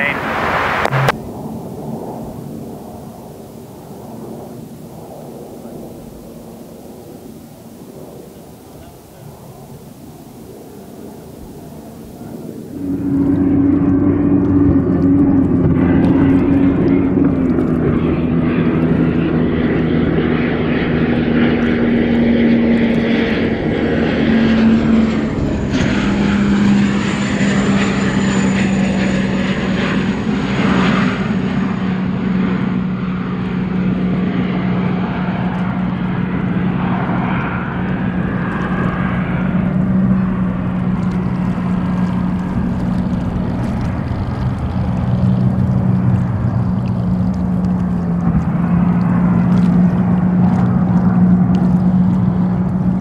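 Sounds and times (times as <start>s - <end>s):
thin high whine: 0.0s - 33.8s
gas turbine engine drone: 0.0s - 53.0s.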